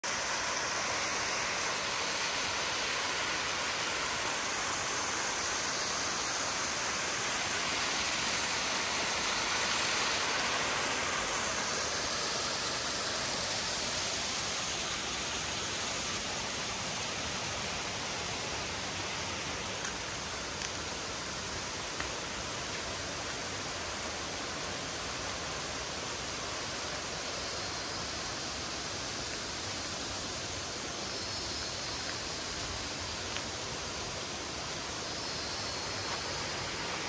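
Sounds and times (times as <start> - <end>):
waterfall rushing: 0.0 - 30.9, 31.7 - 37.0.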